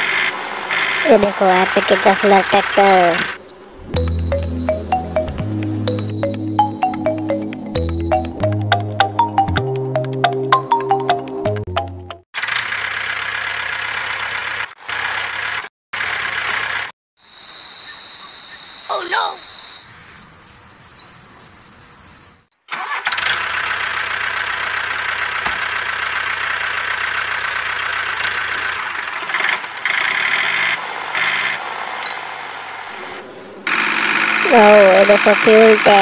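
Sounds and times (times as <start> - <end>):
high electronic tones: 2.8 - 9.7.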